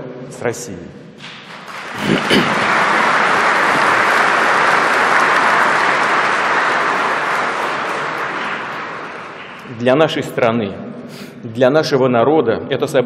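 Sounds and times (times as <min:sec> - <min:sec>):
audience applauding: 0:01.2 - 0:10.2.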